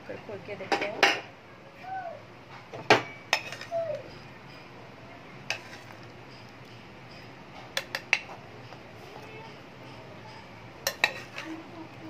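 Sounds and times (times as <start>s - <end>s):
metal ladle clinking on pot: 3.0s - 3.7s, 5.5s - 6.1s, 9.9s - 11.6s.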